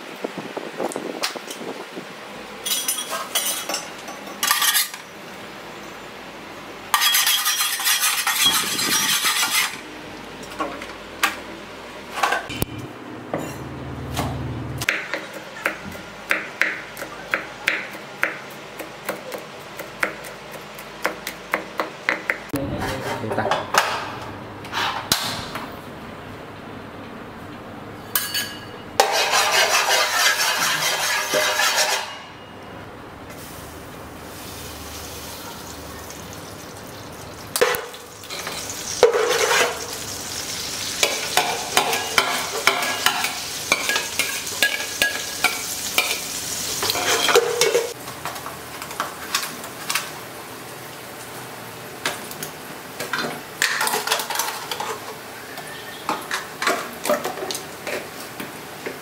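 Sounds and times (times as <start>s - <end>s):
pot and utensils clattering: 2.6s - 5.1s, 6.9s - 9.8s, 28.1s - 32.5s, 37.5s - 40.0s, 41.0s - 48.0s, 53.0s - 58.2s.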